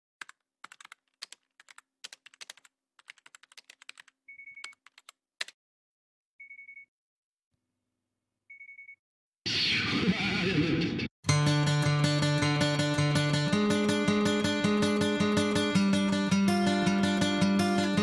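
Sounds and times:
computer keyboard typing: 0.2 - 5.6.

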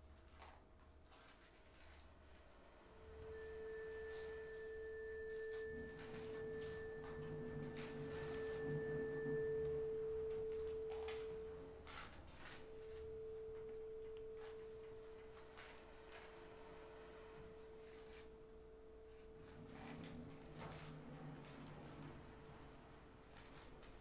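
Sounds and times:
fainter higher tone: 2.9 - 24.0
bowed vibraphone tone: 3.1 - 15.6.

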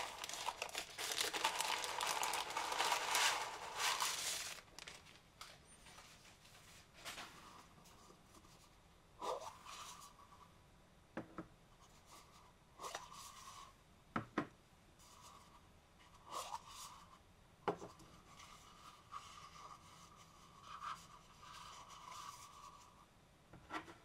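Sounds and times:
plastic rubbing against plastic: 0.0 - 5.2.

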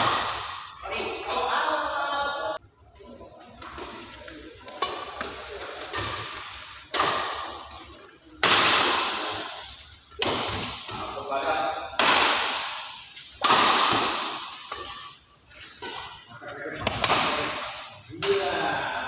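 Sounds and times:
racket hitting shuttlecock: 0.0 - 0.9, 4.7 - 11.1, 11.9 - 18.6.

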